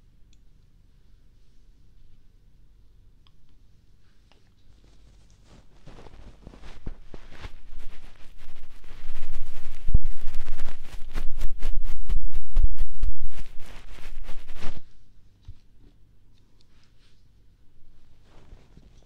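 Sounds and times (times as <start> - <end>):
hands rubbing on microphone: 4.5 - 15.0.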